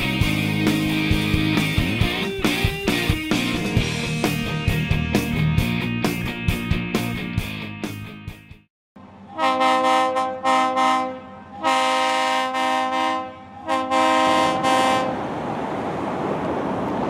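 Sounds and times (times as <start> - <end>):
train air horn blasts: 9.3 - 15.2.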